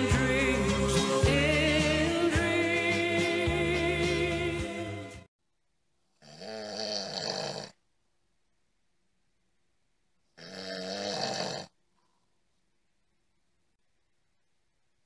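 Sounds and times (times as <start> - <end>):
song playing: 0.0 - 5.3
man snoring: 6.2 - 7.8, 10.4 - 11.8.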